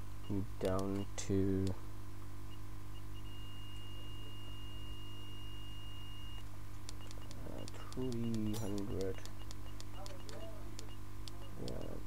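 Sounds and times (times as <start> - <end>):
low electrical hum: 0.0 - 12.0
electronic beeps: 2.9 - 12.0.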